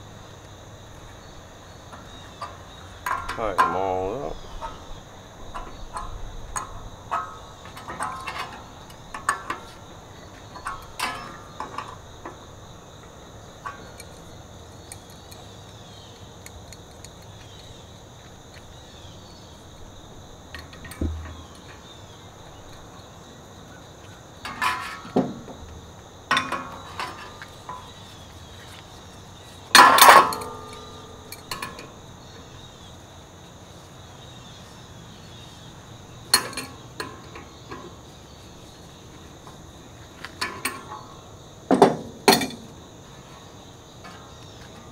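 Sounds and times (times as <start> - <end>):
insects droning: 0.0 - 44.9
wrench clinking on metal puller: 2.0 - 9.8, 10.5 - 12.0, 13.6 - 15.8, 24.4 - 25.2, 26.3 - 28.0, 29.7 - 32.0, 36.3 - 38.0, 42.2 - 42.7.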